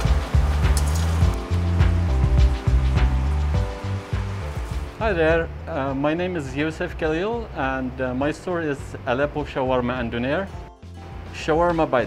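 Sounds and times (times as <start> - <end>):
percussion hits: 0.0 - 5.0
background music with bass line: 0.0 - 12.0.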